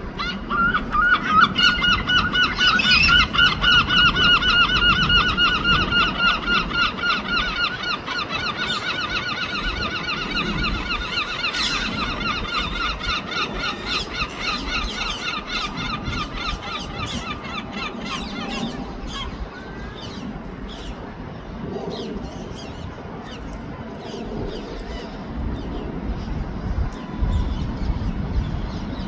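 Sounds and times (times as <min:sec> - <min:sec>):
gulls yelping calls: 0:00.0 - 0:26.0.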